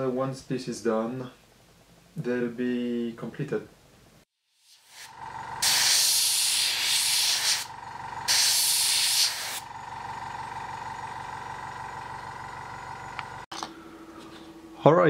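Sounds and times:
aerosol can spraying: 4.6s - 7.7s, 8.3s - 9.6s.

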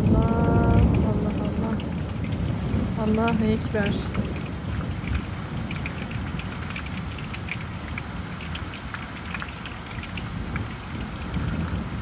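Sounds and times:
low rumble: 0.0s - 8.2s
heavy rain falling: 0.0s - 12.0s
raindrops tapping: 0.0s - 12.0s.

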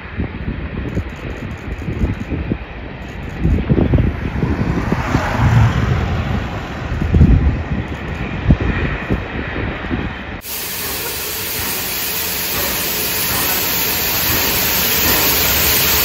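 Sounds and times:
wind buffeting microphone: 0.0s - 10.5s
steam locomotive hissing steam: 10.4s - 16.0s.

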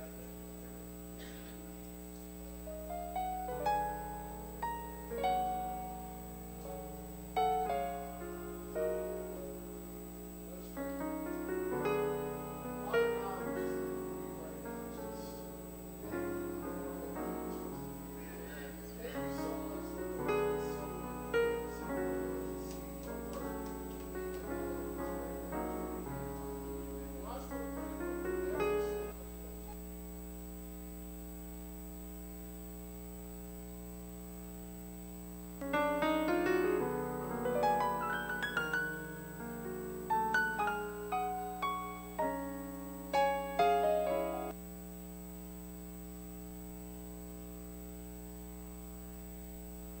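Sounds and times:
steady low hum: 0.0s - 50.0s
piano playing slow chords: 2.4s - 29.8s, 35.5s - 44.7s.

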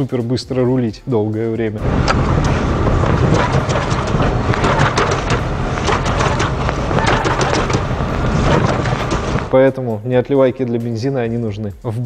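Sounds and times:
car engine and road rumble: 1.8s - 9.5s
knocks and rattles in car: 1.8s - 9.5s.

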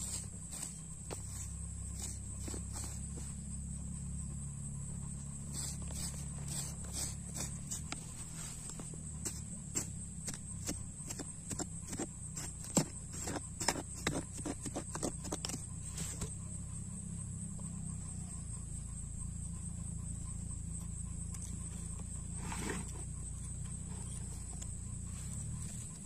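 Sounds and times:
steady low hum: 0.0s - 26.0s
hand pick chopping hard dirt: 5.6s - 15.6s.

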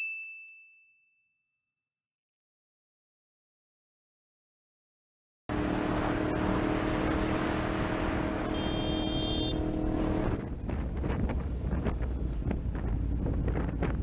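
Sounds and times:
wind noise on microphone: 10.0s - 14.0s.

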